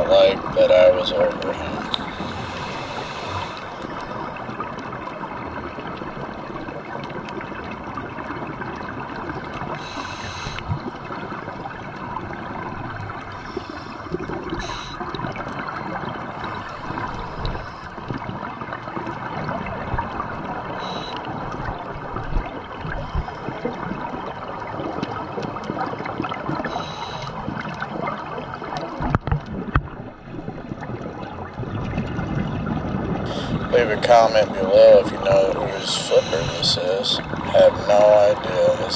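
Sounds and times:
underwater crackling hiss: 0:01.8 - 0:04.2, 0:09.7 - 0:10.8, 0:13.3 - 0:15.1, 0:20.8 - 0:21.3, 0:26.6 - 0:27.5, 0:33.3 - 0:38.9.

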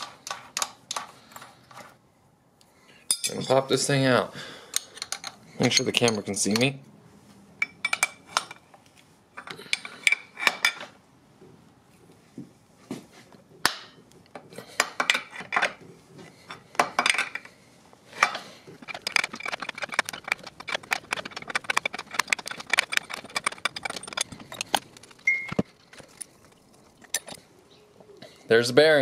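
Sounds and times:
metal tools clinking: 0:03.1 - 0:04.0, 0:04.6 - 0:06.8, 0:07.6 - 0:08.7, 0:09.4 - 0:11.0, 0:16.4 - 0:17.6, 0:18.2 - 0:27.4
rapid metallic clicks of puller: 0:18.2 - 0:25.2.

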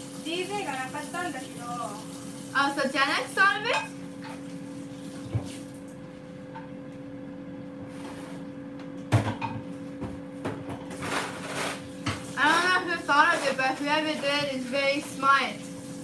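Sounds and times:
kitchen knocks and clatter: 0:09.1 - 0:14.7.

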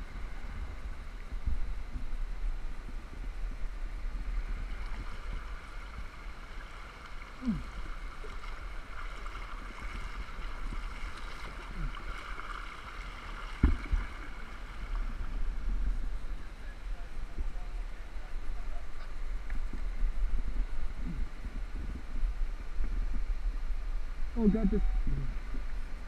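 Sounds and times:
wind on microphone: 0:00.0 - 0:12.4, 0:13.3 - 0:26.0
river water rushing: 0:03.8 - 0:16.4.

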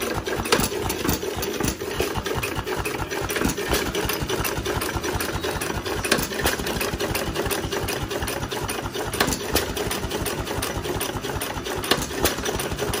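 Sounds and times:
engine mechanical clatter: 0:00.0 - 0:13.0
sharp engine knocks: 0:00.0 - 0:13.0.

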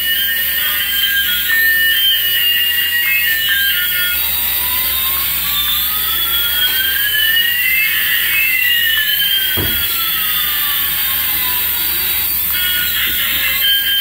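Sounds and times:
toy plane jet engine sound effect: 0:00.0 - 0:14.0
dull knock: 0:09.6 - 0:10.1.

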